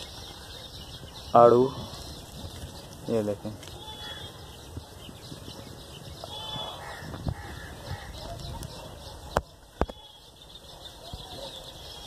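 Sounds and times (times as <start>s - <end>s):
faint bird calls: 3.6s - 4.9s, 6.0s - 12.0s.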